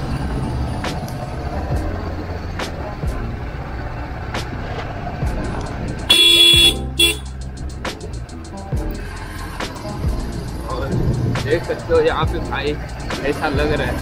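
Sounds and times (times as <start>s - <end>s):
motorcycle engine running: 0.0s - 14.0s
motorcycle horn honking: 6.0s - 7.4s.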